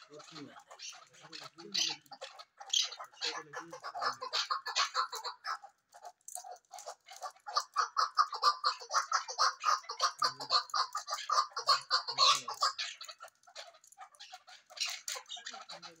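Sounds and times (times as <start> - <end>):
partridges calling chuck notes: 6.4 - 16.0.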